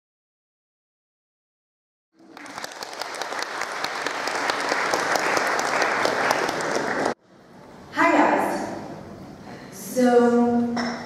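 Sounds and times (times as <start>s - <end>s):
audience applauding: 2.2s - 7.2s.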